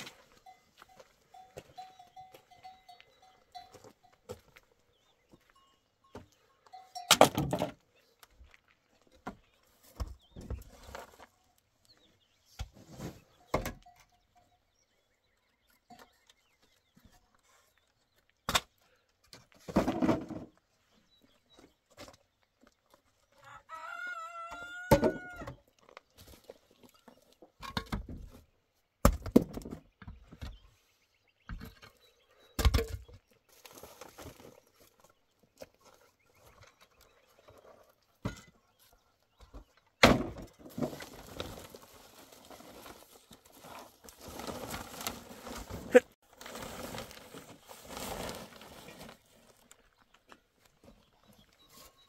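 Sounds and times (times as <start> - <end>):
concrete blocks and pallets knocking: 7.0 - 7.8, 19.3 - 20.6, 29.0 - 30.6
rooster crowing: 23.4 - 25.5.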